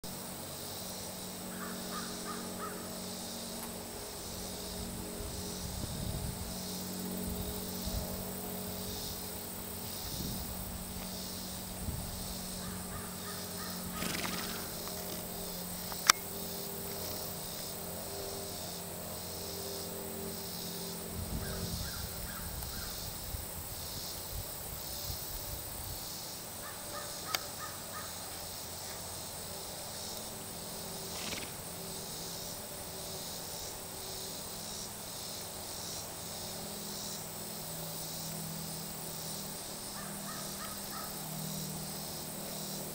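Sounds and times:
insects chirping: 0.0s - 42.9s
bird calling: 1.5s - 3.0s, 12.6s - 16.2s, 39.9s - 41.2s
sharp click: 15.8s - 16.3s.

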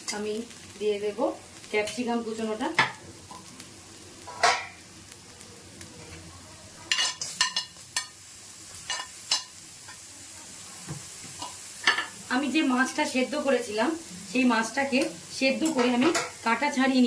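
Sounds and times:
vegetables sizzling in oil: 0.0s - 17.0s
spoon clicking and scraping pan: 6.9s - 8.2s, 8.8s - 10.0s.

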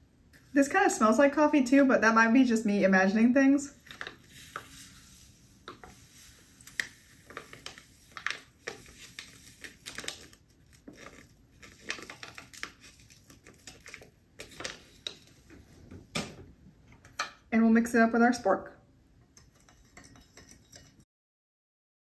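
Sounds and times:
paper pouch crinkling: 5.9s - 15.4s.

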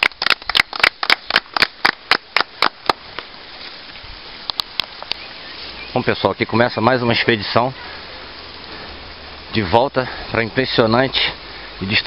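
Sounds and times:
group clapping in rhythm: 0.0s - 3.0s.

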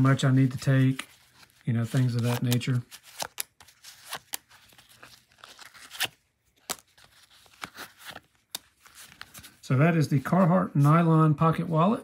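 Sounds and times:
cards clicking and scraping: 0.2s - 9.6s.

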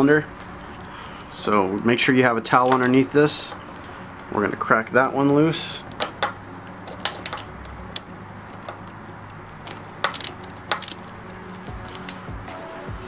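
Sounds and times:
ratchet metallic clicks: 9.6s - 11.2s.

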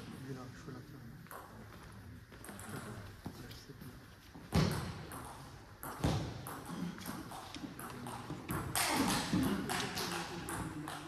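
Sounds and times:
table tennis balls clicking: 4.8s - 11.0s.

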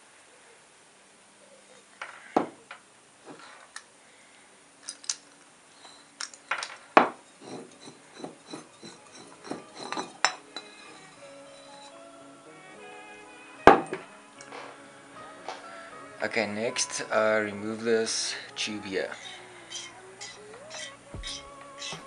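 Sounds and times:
metal clinks and knocks: 5.9s - 11.9s.

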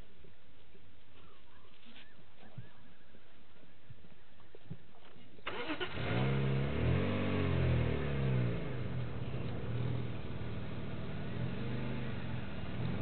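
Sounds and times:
vehicle engine starting and revving: 5.4s - 13.0s.

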